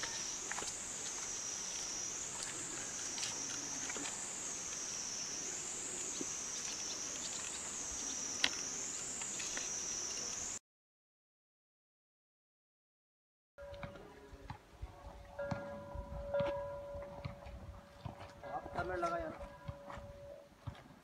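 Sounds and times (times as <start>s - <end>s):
insects shrilling: 0.0s - 10.6s.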